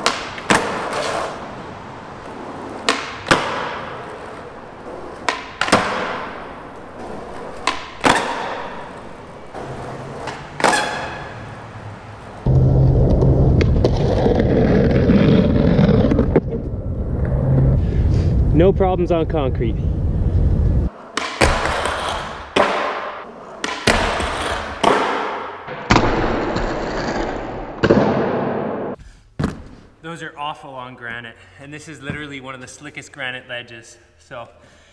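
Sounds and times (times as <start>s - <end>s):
skateboard landing slap: 0.0s - 1.3s, 2.8s - 4.3s, 5.1s - 11.4s, 21.1s - 29.8s
skateboard wheels rolling on concrete: 0.0s - 30.0s
skateboard tail snap on concrete: 2.8s - 3.8s, 5.3s - 6.3s.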